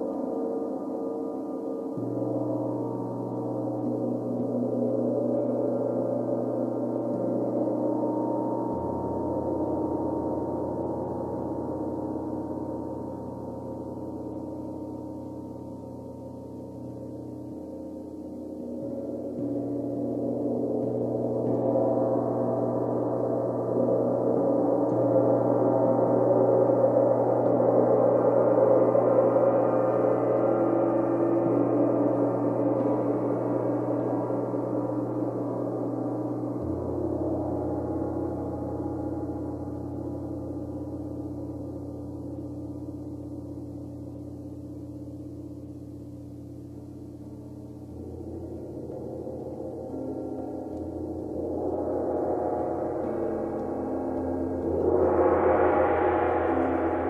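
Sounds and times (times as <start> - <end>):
gong played with mallets: 0.1 - 45.8, 46.8 - 57.0
deep low tone: 1.9 - 12.3, 13.1 - 57.0
gongs droning: 47.0 - 57.0.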